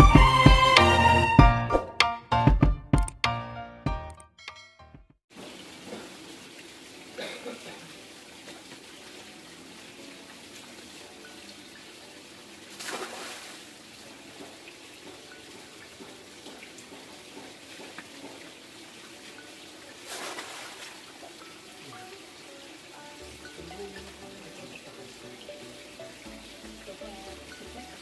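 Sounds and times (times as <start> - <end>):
fish splashing into water: 12.7 - 13.9, 19.9 - 21.4.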